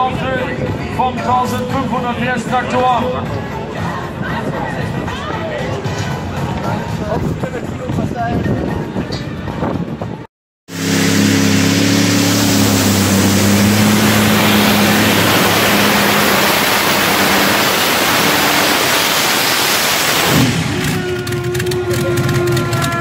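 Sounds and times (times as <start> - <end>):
tractor engines roaring: 10.7 - 23.0.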